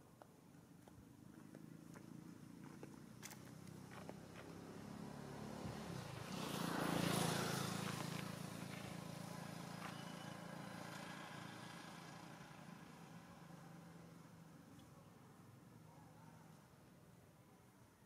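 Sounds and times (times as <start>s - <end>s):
vehicle passing: 1.8s - 14.2s.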